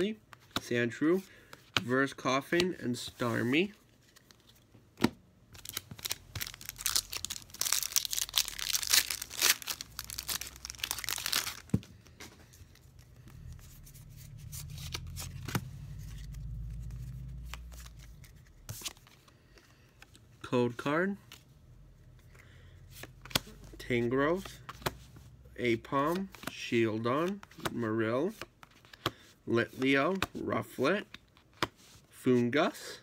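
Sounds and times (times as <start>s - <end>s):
foil wrapper crinkling and tearing: 5.6s - 11.7s.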